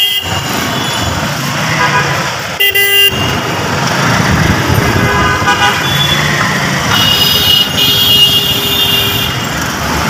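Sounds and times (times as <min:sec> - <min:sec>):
vehicle horns honking: 0:00.0 - 0:03.5, 0:05.0 - 0:09.6
vehicle engines running: 0:03.2 - 0:10.0.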